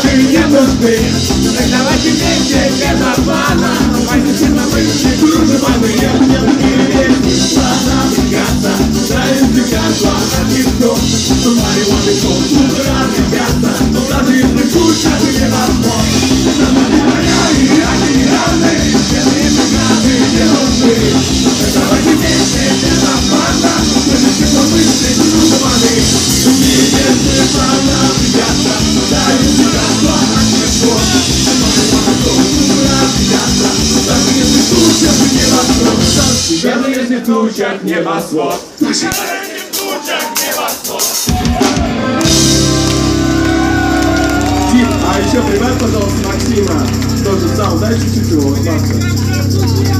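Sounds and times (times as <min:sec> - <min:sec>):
electric guitars: 0:00.0 - 0:36.7, 0:41.2 - 0:49.9
live rock band playing: 0:00.0 - 0:36.8, 0:38.6 - 0:49.9
person singing: 0:00.0 - 0:48.9
drums: 0:00.0 - 0:49.9
tambourine: 0:46.6 - 0:49.9.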